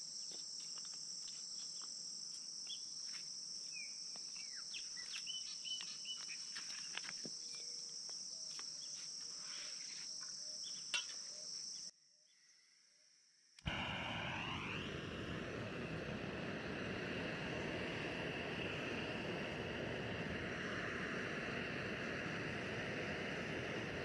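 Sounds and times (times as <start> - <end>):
crickets chirping: 0.0 - 14.9, 15.8 - 24.0
bird chirps: 3.7 - 12.6.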